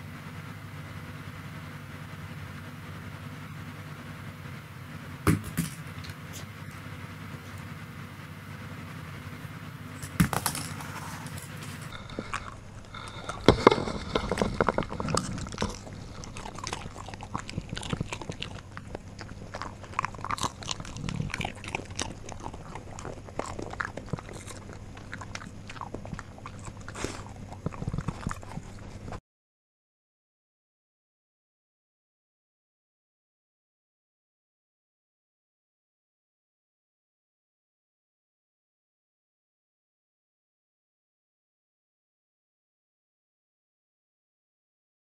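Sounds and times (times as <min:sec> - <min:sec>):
dog chewing something hard: 0:10.0 - 0:29.2.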